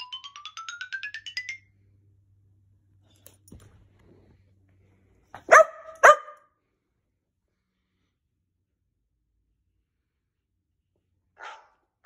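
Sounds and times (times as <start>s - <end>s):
dog barking: 5.4s - 6.5s, 11.4s - 11.9s.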